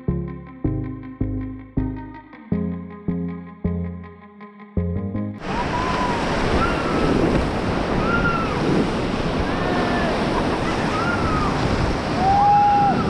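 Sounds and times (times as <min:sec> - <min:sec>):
river rapids roaring: 0:05.4 - 0:13.0
wind buffeting microphone: 0:05.4 - 0:13.0.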